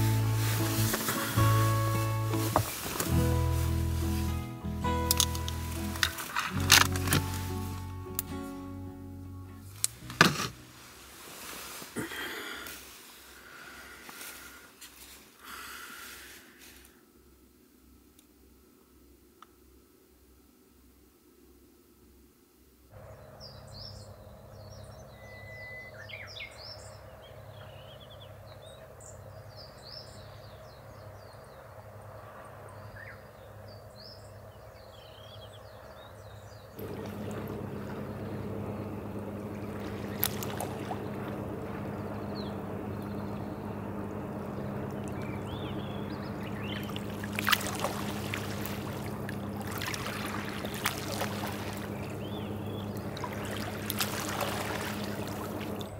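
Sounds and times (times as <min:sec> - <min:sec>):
water splashes: 0:00.0 - 0:08.4, 0:36.8 - 0:55.9
birds chirping: 0:23.0 - 0:55.9
small waves lapping on rocks: 0:36.8 - 0:42.4, 0:46.4 - 0:55.9.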